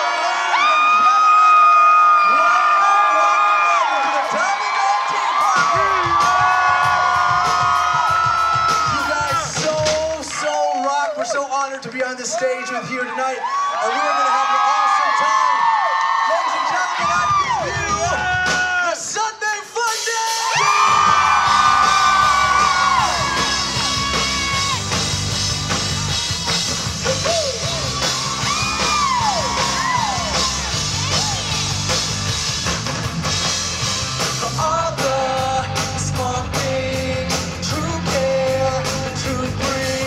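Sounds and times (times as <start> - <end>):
live rock band playing: 5.3 - 10.3, 19.9 - 40.0.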